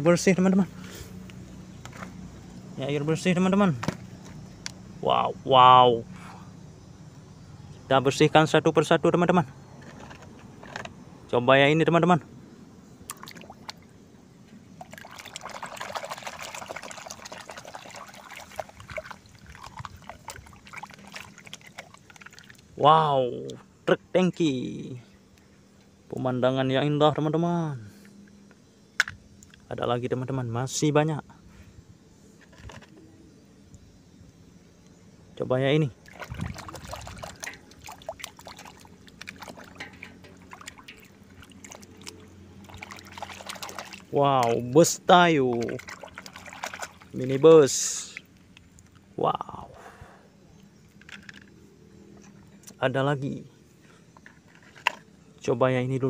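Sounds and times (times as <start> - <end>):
water dripping: 14.8 - 22.6, 36.0 - 44.6, 45.5 - 47.4
water sloshing in a washbasin: 14.8 - 22.6, 36.0 - 48.3.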